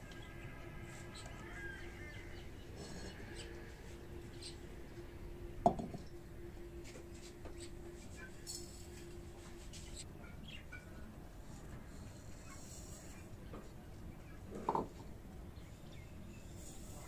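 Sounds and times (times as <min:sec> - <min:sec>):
steady low hum: 0:00.0 - 0:17.0
clay bowl knocking on concrete: 0:05.6 - 0:06.0.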